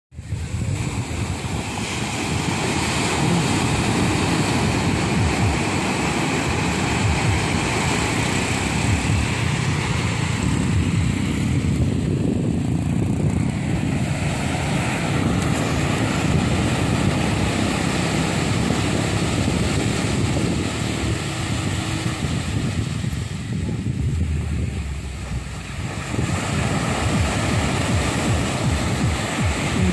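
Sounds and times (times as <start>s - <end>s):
wind rumbling on microphone: 0.1s - 29.9s
waves washing on sandy beach: 0.2s - 29.9s.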